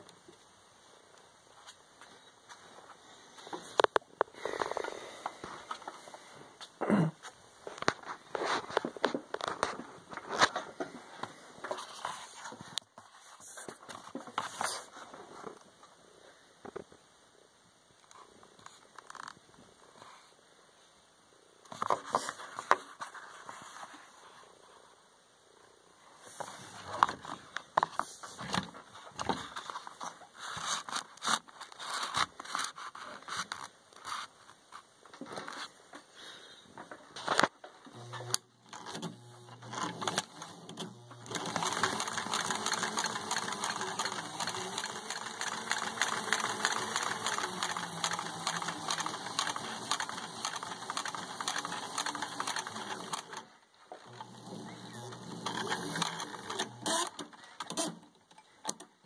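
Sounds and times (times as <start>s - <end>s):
sewing machine running: 38.0s - 53.5s, 54.1s - 57.1s.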